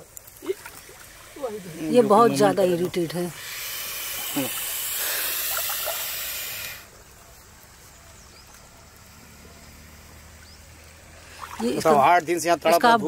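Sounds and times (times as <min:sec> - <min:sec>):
snake hissing: 0:00.4 - 0:07.2.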